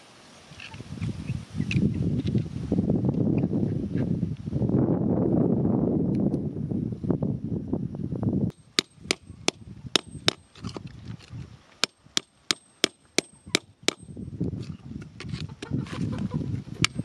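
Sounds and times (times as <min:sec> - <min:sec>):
digging tool knocking stones: 0:08.5 - 0:14.2
soil and stones crunching: 0:08.5 - 0:17.0.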